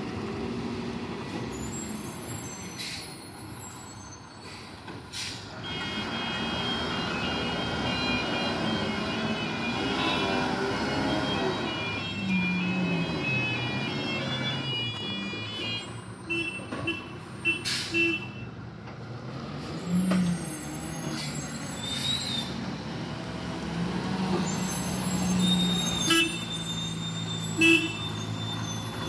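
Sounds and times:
heavy truck diesel engine: 0.0 - 29.0.

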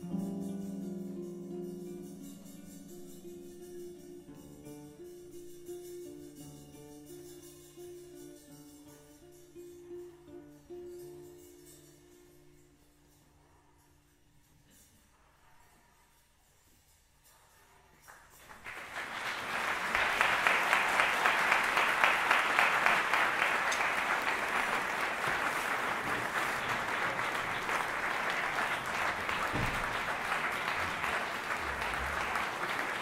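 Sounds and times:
audience applauding: 18.4 - 33.0.

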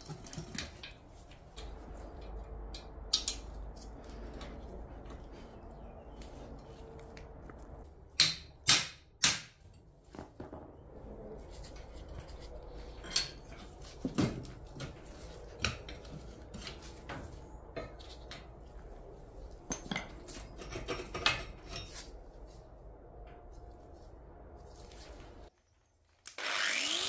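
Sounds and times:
metal scrapes: 11.0 - 17.0
metal knocks and clinks: 19.6 - 22.0.

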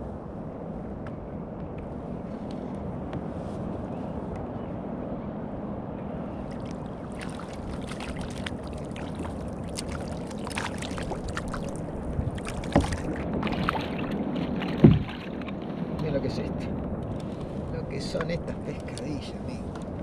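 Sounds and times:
water lapping around a kayak: 6.4 - 20.0
loud thump: 14.8 - 15.1.

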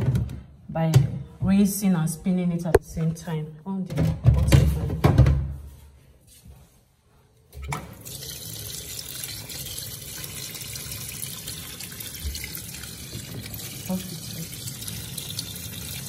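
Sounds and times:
water churning in washing machine: 7.9 - 16.0.

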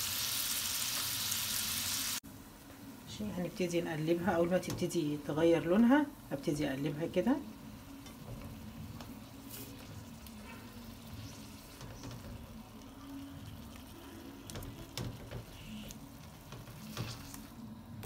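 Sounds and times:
meat sizzling in a frying pan: 0.0 - 2.2.

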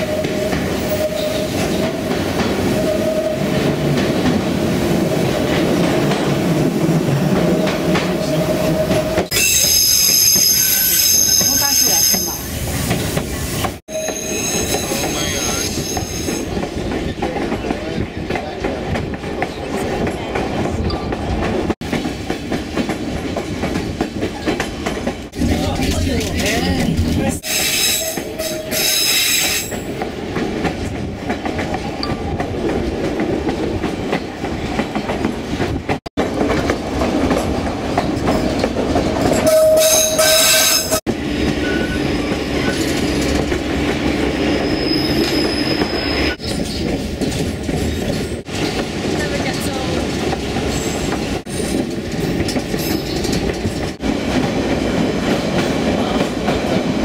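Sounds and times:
train rumble: 10.4 - 57.0
brief steady tone: 13.9 - 14.8.

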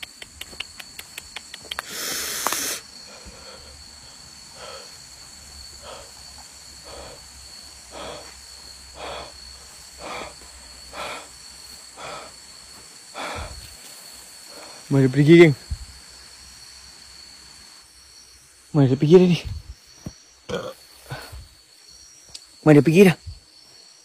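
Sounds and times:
high insect drone: 0.0 - 24.0
loud hiss: 1.8 - 6.2
footsteps through grass and leaves: 11.4 - 16.1.

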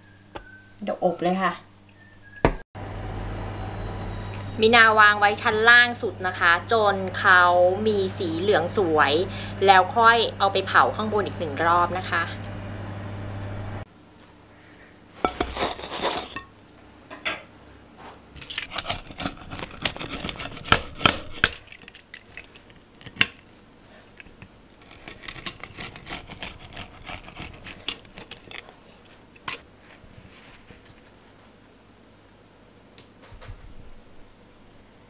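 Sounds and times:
pizza cutter scraping plate: 15.2 - 16.5, 18.7 - 21.5, 23.9 - 29.6.

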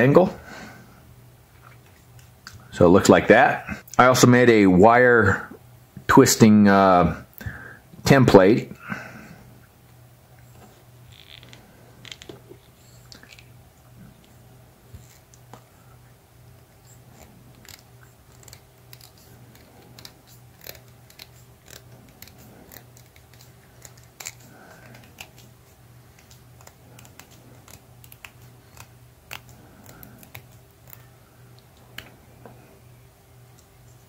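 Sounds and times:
steady low hum: 0.0 - 34.0
wire clicking and scraping: 16.8 - 32.6.

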